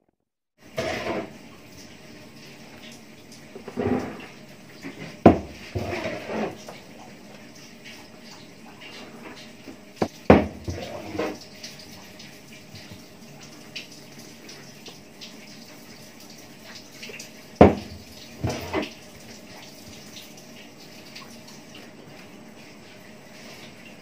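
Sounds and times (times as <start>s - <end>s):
plastic bucket knocks and scrapes: 0.8s - 1.3s, 3.6s - 6.8s, 10.0s - 11.4s, 17.6s - 18.9s.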